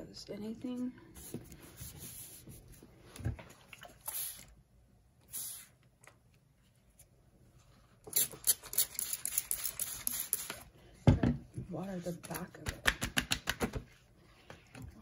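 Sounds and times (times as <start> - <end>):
short hissing sounds: 4.1 - 4.5, 5.2 - 5.8.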